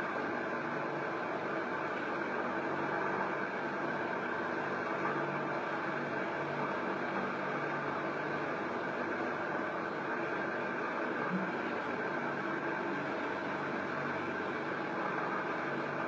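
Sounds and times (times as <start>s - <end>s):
fan whirring: 0.0s - 16.0s.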